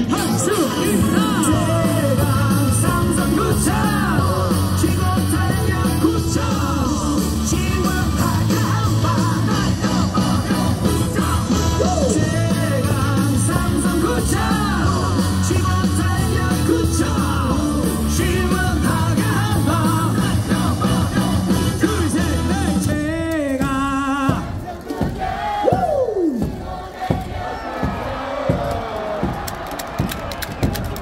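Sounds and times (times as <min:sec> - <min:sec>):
rock music from stadium speakers: 0:00.0 - 0:27.4
crowd singing and shouting: 0:00.0 - 0:31.0
crowd falling cry: 0:24.5 - 0:31.0.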